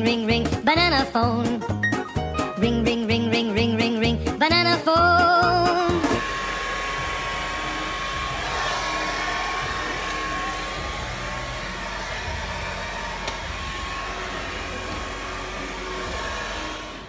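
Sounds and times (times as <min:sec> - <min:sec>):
hair dryer blowing: 0:04.9 - 0:17.0.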